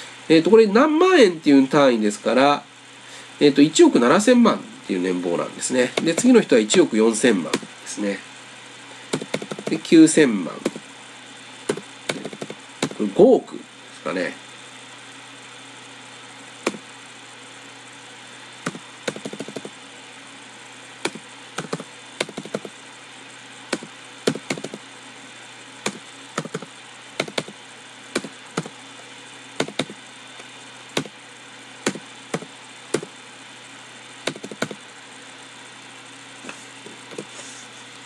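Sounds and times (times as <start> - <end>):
keyboard typing clicks: 9.2 - 9.8, 11.7 - 13.0, 18.7 - 19.7, 21.1 - 22.7, 23.7 - 24.8, 25.9 - 27.6, 28.2 - 28.7, 29.6 - 30.0, 34.3 - 34.8.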